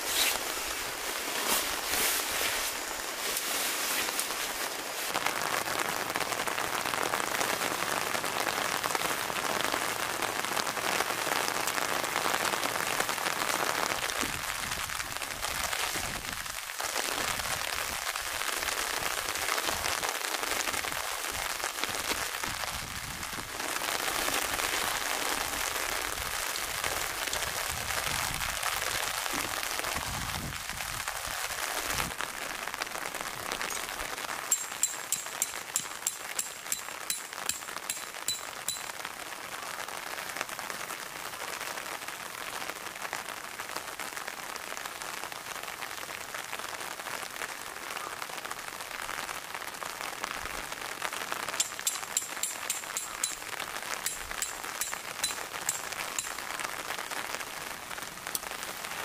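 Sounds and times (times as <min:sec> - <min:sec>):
rain on tent fabric: 0:00.0 - 0:59.0.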